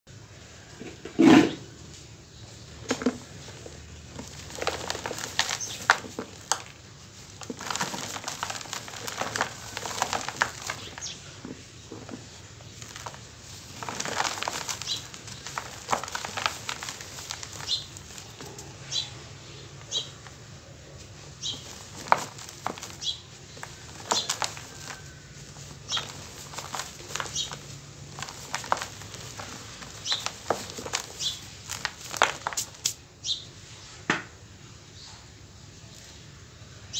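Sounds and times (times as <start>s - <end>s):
cement blocks crunching and snapping: 2.8s - 19.1s, 21.4s - 33.0s
powder sifting into plastic basin: 2.8s - 20.4s, 21.0s - 33.0s.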